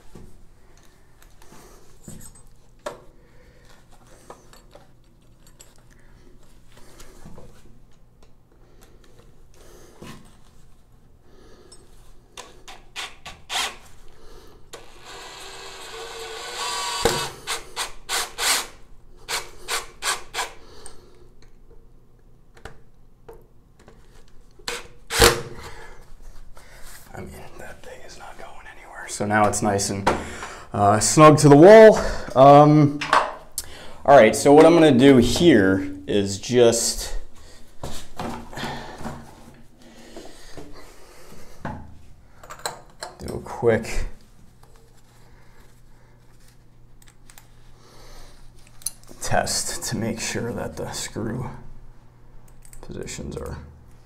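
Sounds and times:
cordless drill driving a screw: 14.8s - 18.7s.

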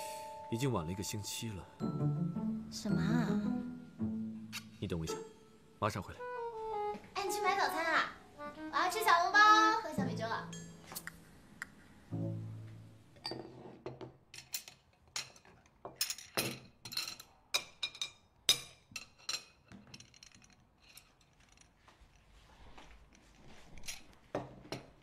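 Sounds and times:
ceramic dishes clinking on table: 10.5s - 11.0s, 13.2s - 21.1s.

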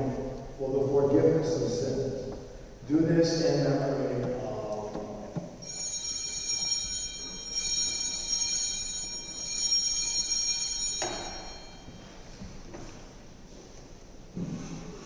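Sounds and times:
altar bells ringing: 5.6s - 12.7s.

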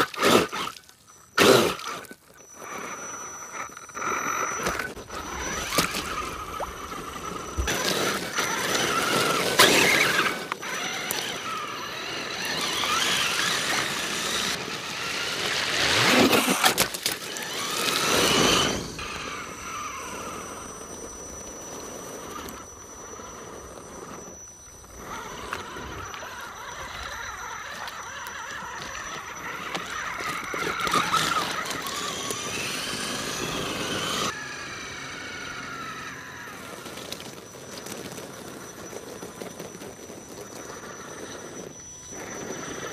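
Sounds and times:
toy truck motor whining: 0.0s - 42.9s
ice breaking: 15.9s - 18.4s.

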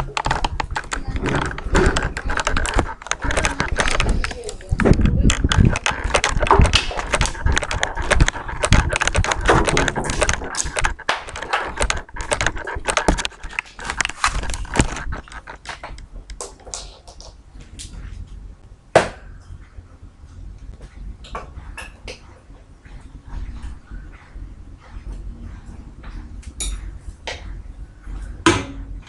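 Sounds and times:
clicks and knocks of handling: 0.0s - 18.0s.

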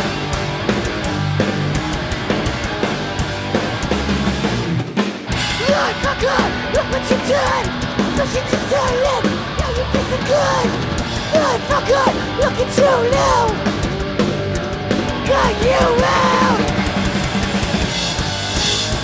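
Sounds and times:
punk band playing live: 0.0s - 19.0s
vocals over band: 5.4s - 17.6s.

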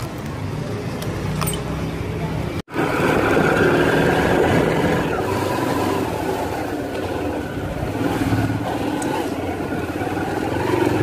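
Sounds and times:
motorcycle engine running: 2.7s - 11.0s.

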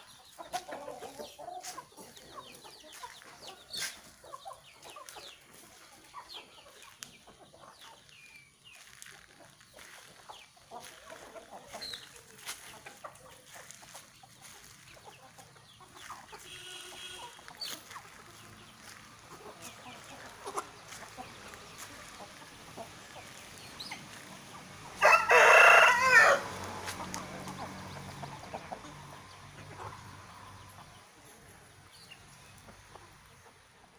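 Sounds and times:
chickens clucking: 0.0s - 33.9s
rooster crowing: 25.0s - 26.6s.

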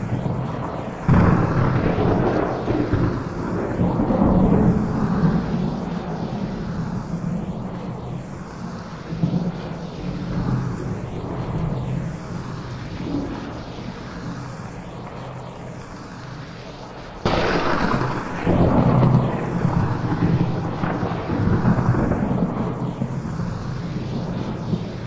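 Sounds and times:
loud thunderclap: 0.0s - 8.0s, 17.2s - 25.0s
steady rain: 0.0s - 25.0s
thunder rumbling: 0.0s - 25.0s.

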